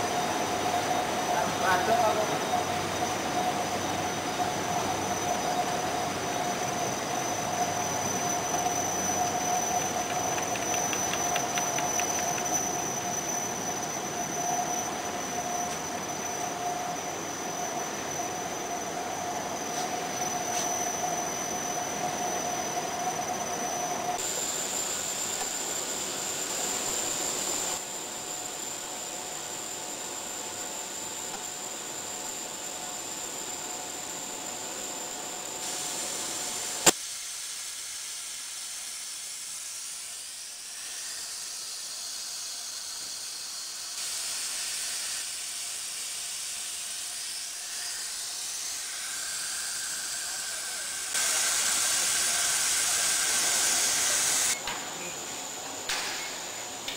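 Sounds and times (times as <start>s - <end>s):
high machine whine: 0.0s - 56.9s
machinery hiss and hum: 0.0s - 56.9s
sharp click: 10.0s - 12.5s.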